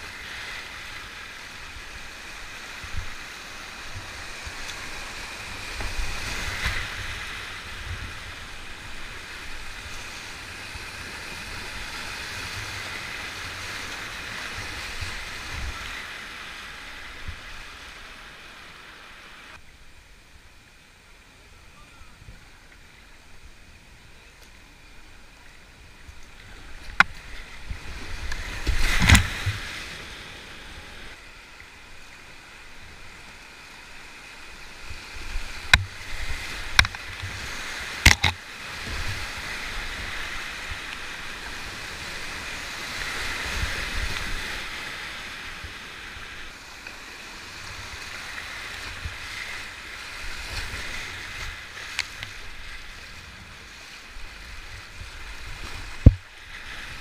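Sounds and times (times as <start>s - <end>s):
water splashes: 22.0s - 57.0s.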